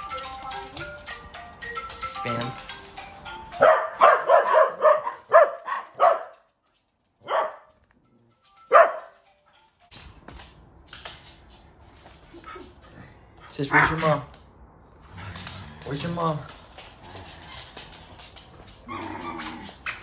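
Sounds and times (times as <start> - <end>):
small dog barking: 3.6 - 6.3, 7.2 - 7.7, 8.7 - 9.0.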